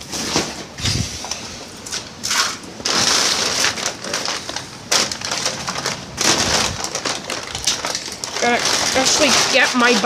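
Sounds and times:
plastic tarp rustling: 0.0 - 10.0
footsteps through dry leaves: 8.2 - 10.0.

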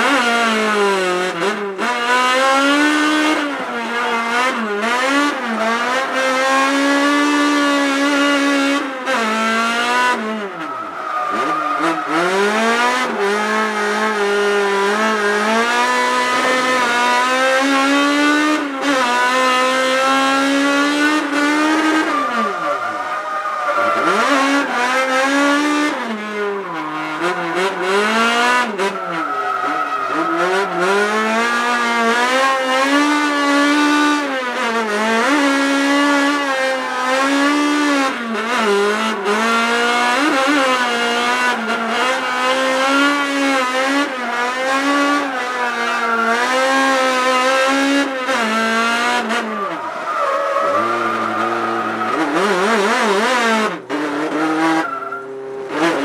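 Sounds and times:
car engine revving: 0.0 - 56.0
tyres squealing: 10.5 - 13.4, 21.6 - 25.1, 26.5 - 31.2, 49.5 - 52.8.

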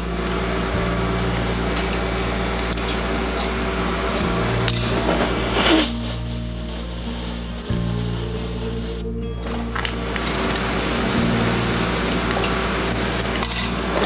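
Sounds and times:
background music: 0.0 - 14.0
gas torch flame hissing: 4.9 - 9.1.

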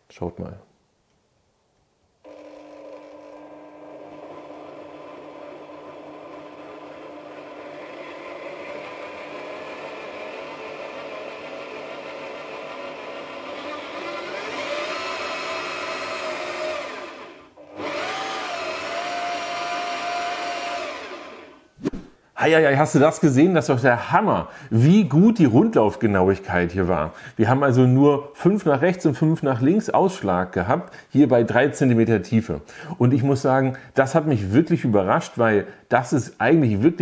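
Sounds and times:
drill motor whine: 2.3 - 21.6.

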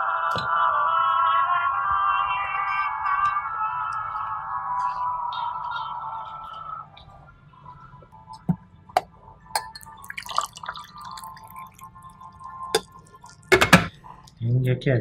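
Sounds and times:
glass clinking: 9.5 - 14.0
tea trickling and dripping: 9.5 - 14.4.

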